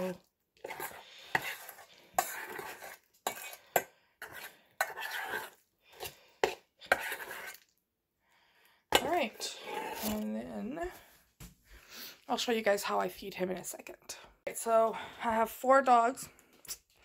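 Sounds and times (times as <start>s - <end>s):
utensil scraping blender jar: 0.0s - 7.7s, 9.0s - 10.4s.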